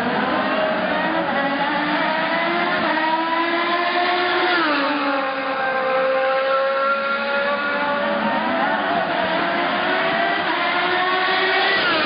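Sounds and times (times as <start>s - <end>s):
race car engine at high revs: 0.0s - 12.0s.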